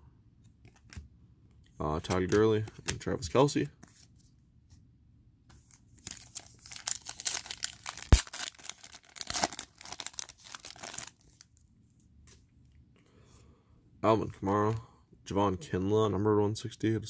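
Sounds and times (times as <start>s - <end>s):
foil wrapper tearing and crinkling: 6.0s - 11.4s.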